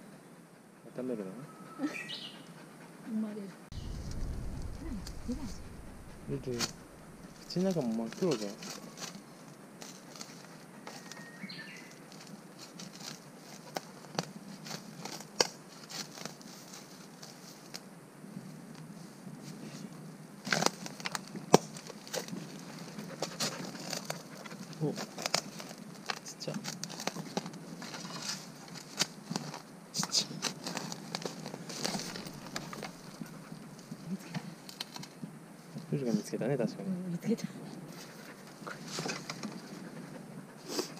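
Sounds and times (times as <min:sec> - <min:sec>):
dry leaves crackling and rustling: 0:03.7 - 0:11.1, 0:20.4 - 0:29.6, 0:30.4 - 0:33.3
dog digging in leaf litter: 0:03.8 - 0:17.7, 0:20.5 - 0:29.6, 0:30.2 - 0:33.6.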